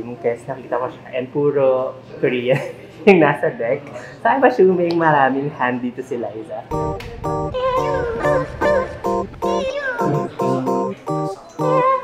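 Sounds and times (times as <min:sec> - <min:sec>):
plucked guitar chords: 0:06.7 - 0:12.0
sliding wavering lead melody: 0:06.7 - 0:12.0.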